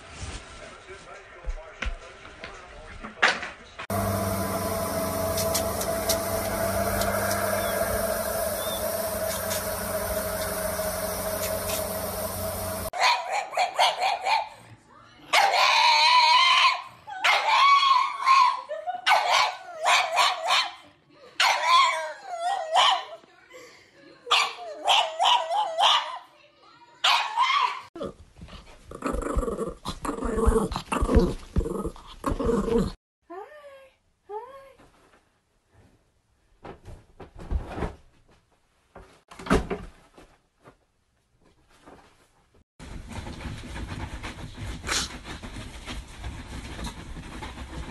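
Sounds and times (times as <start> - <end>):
dog howling: 3.9 - 12.9.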